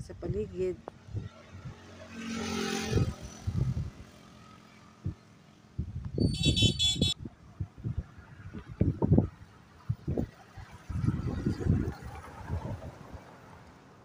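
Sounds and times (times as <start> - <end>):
motor scooter passing: 1.1 - 5.0.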